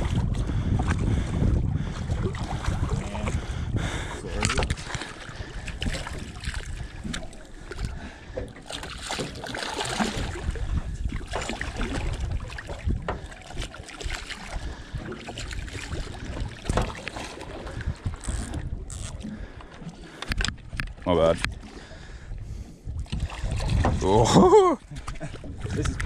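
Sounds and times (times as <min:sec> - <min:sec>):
wind on microphone: 0:00.0 - 0:08.4, 0:09.2 - 0:26.0
fish splashing in water: 0:08.6 - 0:10.5.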